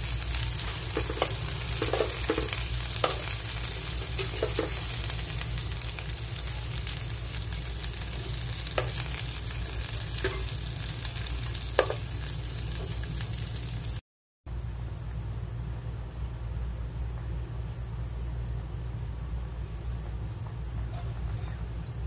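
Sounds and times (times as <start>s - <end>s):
shrimp sizzling in oil: 0.0s - 14.0s.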